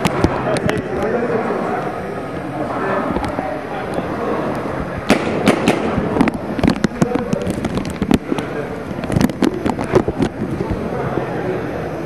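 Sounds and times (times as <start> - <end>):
paintball markers firing: 5.1 - 8.2.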